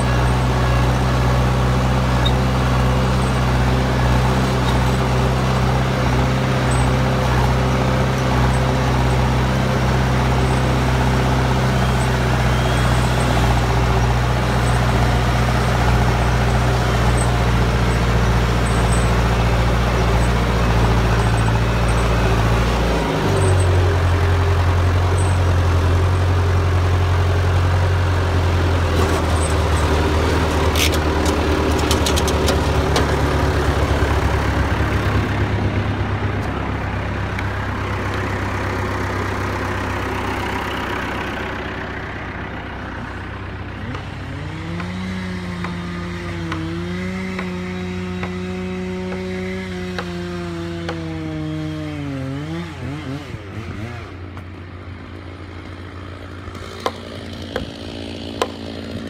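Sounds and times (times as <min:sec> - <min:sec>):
diesel engine running: 0:00.0 - 0:59.0
chainsaw revving: 0:43.8 - 0:54.4, 0:56.2 - 0:59.0.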